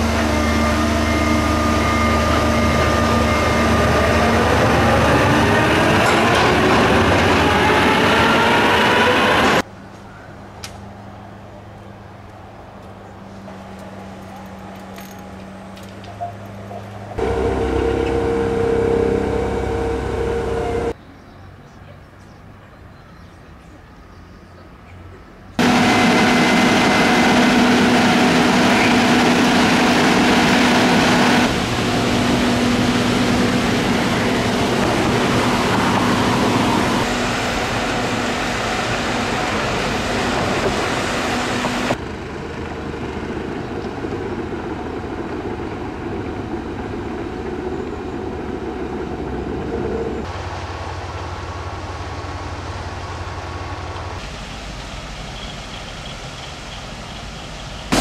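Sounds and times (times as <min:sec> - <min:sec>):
diesel locomotive engine drone: 0:00.0 - 0:21.0, 0:25.4 - 0:58.0
machine engine hum: 0:17.1 - 0:21.0, 0:25.6 - 0:55.4
mechanical working noise: 0:17.2 - 0:20.9, 0:25.6 - 0:42.0.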